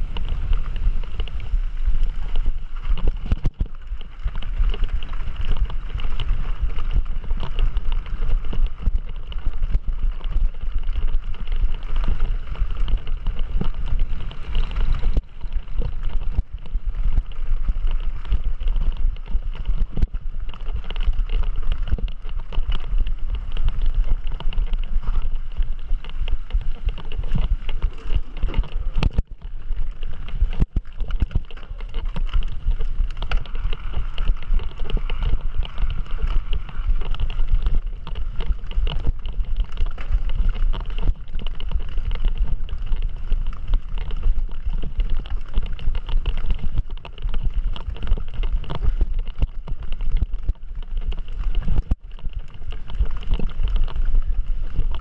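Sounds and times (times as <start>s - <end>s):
bike rumbling over trail: 0.0s - 55.0s
wind buffeting microphone: 0.0s - 55.0s.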